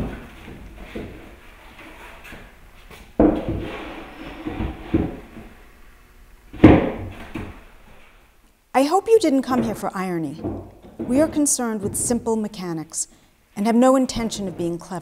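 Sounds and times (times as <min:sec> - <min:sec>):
wood knocking and clunking: 0:00.0 - 0:05.6, 0:06.5 - 0:07.7, 0:09.4 - 0:12.2.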